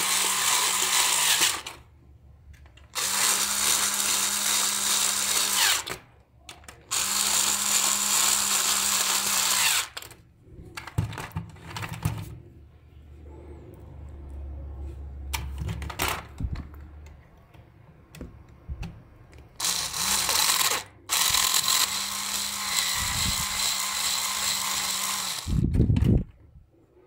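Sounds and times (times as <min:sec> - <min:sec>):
electric screwdriver motor running: 0:00.0 - 0:01.8, 0:03.0 - 0:06.0, 0:06.9 - 0:10.1, 0:19.6 - 0:25.7.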